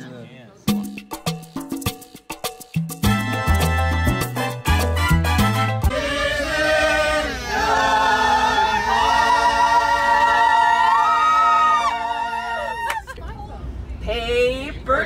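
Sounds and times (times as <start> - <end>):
choir singing a cappella: 5.8 - 10.9.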